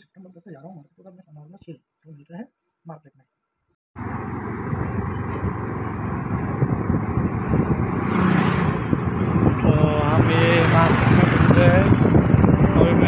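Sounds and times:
motorbike engine and road noise: 4.0 - 13.0
wind buffeting microphone: 4.5 - 13.0.

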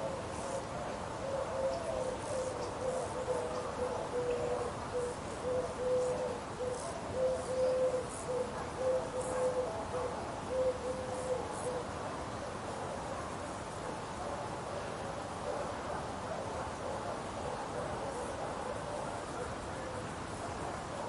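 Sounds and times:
bird hooting: 0.0 - 11.9
rural background noise: 0.0 - 21.0.

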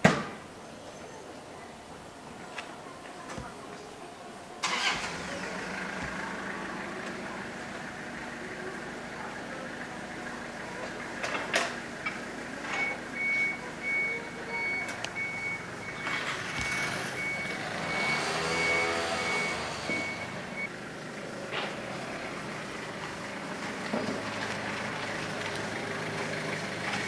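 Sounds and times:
vehicle engine passing: 4.6 - 12.6, 15.2 - 27.0
reversing alarm beeps: 12.7 - 20.7.

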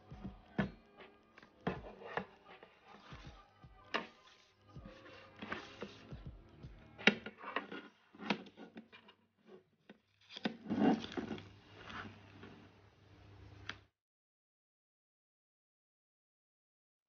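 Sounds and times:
paper rubbing: 3.9 - 6.2, 10.2 - 12.8.

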